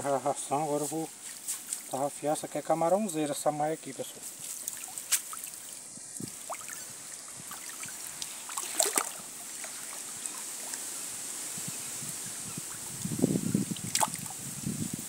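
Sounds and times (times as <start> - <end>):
short water splashes: 4.4 - 10.8, 12.5 - 14.4
water trickling and dripping: 4.4 - 15.0.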